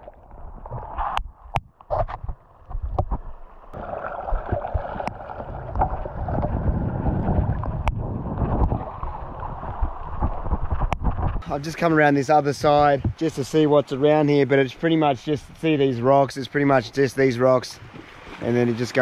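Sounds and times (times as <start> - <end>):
sea water sloshing: 0.0 - 11.4, 17.8 - 19.0
wind buffeting microphone: 4.4 - 11.7, 12.4 - 13.2.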